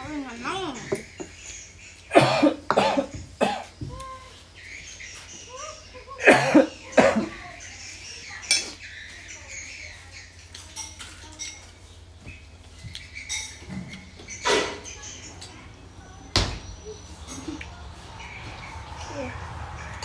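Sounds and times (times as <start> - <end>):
bowls and plates clinking: 10.5 - 11.9, 13.2 - 15.7.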